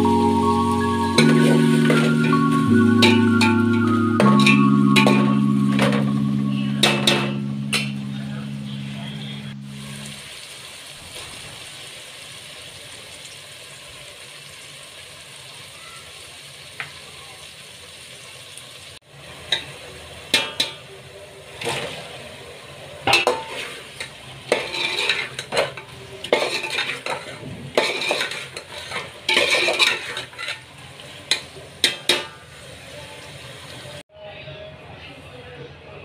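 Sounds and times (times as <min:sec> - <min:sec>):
low sizzle: 0:00.0 - 0:34.0
metal spoon scraping a metal pot: 0:23.1 - 0:30.8.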